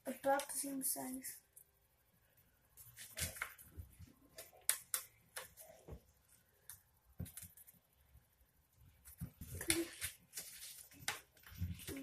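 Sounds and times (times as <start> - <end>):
paper being folded and creased: 9.6 - 12.0.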